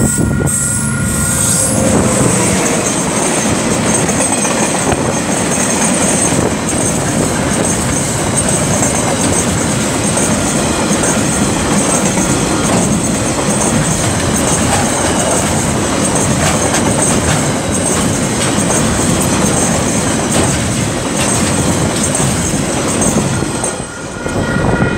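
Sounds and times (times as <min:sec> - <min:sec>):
thin high whine: 0:00.0 - 0:04.0
train wheels rumbling on rails: 0:00.0 - 0:24.9.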